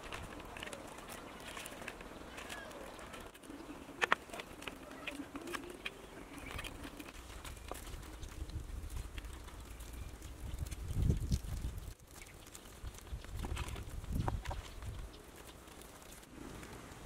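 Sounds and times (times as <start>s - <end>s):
birds calling: 0.0s - 8.4s.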